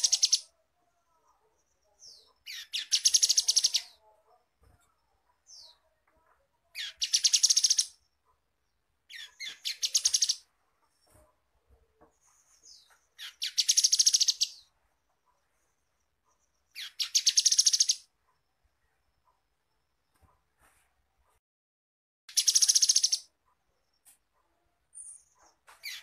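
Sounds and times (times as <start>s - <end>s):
bird singing rapid high trills: 22.3s - 23.3s.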